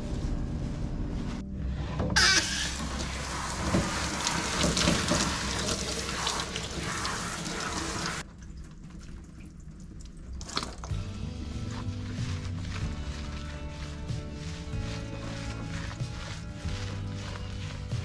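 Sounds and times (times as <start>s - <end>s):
water spraying from shower nozzle: 2.2s - 8.2s, 10.6s - 18.0s.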